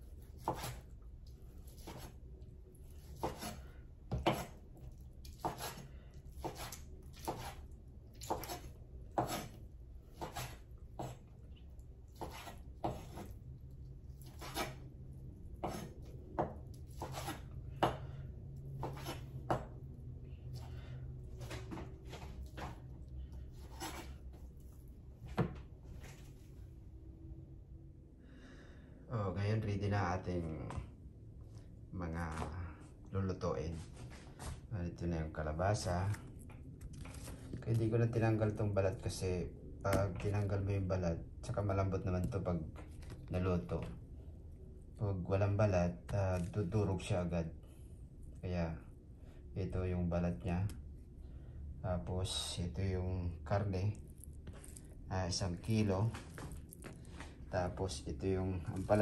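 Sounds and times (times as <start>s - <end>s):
low steady hum: 0.0s - 59.0s
knife chopping on wooden board: 0.3s - 0.8s, 1.7s - 2.1s, 3.1s - 4.6s, 5.2s - 7.6s, 8.2s - 11.2s, 12.1s - 13.4s, 14.2s - 14.8s, 15.6s - 18.1s, 18.8s - 19.7s, 23.6s - 24.2s.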